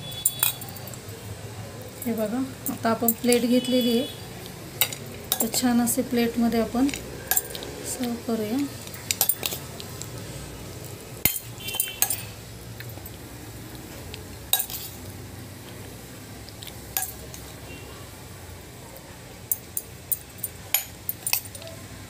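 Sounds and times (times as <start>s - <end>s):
spoon clinking against steel bowl: 0.1s - 1.0s, 4.8s - 5.7s, 6.8s - 7.7s, 8.8s - 9.7s, 11.2s - 12.4s, 14.5s - 15.0s, 16.9s - 17.4s, 19.5s - 21.6s.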